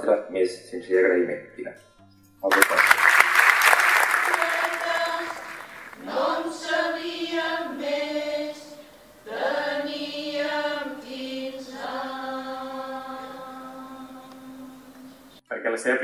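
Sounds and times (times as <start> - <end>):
women's choir singing: 3.6 - 15.3.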